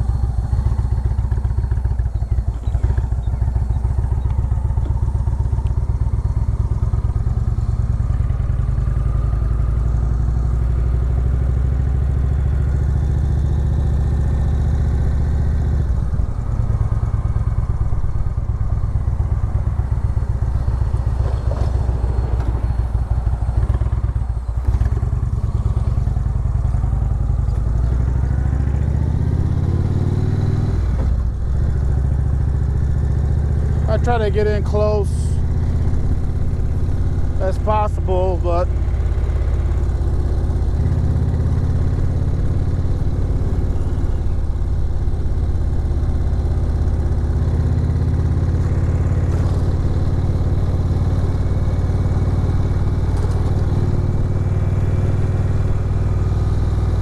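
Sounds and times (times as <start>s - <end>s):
motorcycle engine running: 0.0s - 57.0s.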